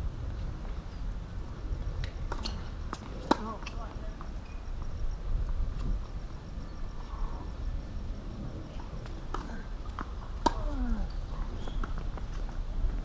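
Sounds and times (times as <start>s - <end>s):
tennis ball hitting rackets: 2.0s - 3.8s, 9.3s - 10.7s.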